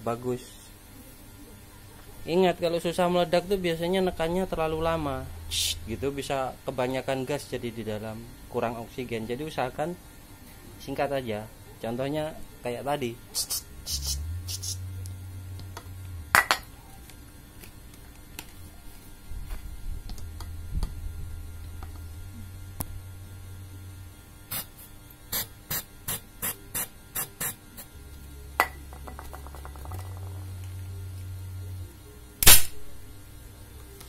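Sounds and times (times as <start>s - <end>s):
toy gun firing bang: 32.4s - 32.8s.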